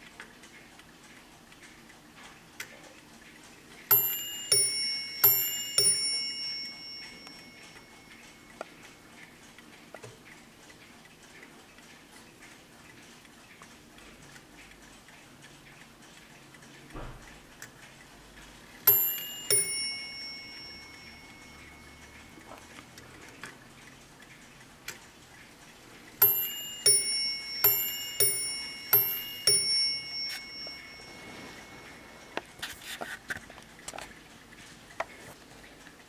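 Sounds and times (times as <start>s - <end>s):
mantel clock ding-dong chimes: 3.9s - 9.1s, 18.8s - 22.9s, 26.2s - 32.6s.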